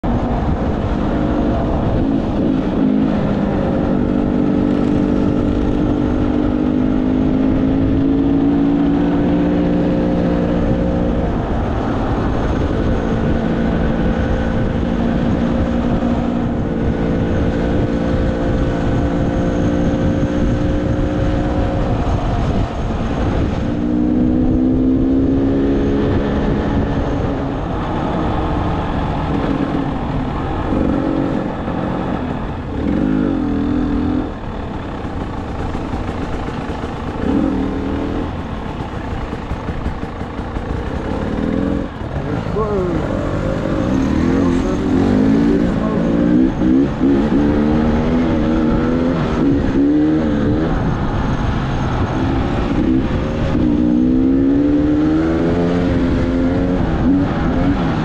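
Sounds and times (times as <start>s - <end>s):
wind noise: 0.0s - 58.0s
dirt bike engine revving: 30.6s - 58.0s
tyres on gravel: 34.4s - 45.3s.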